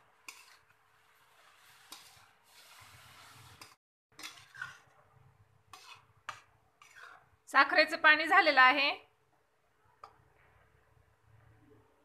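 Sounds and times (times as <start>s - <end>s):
spatula scraping metal pan: 0.2s - 4.9s, 5.7s - 7.3s.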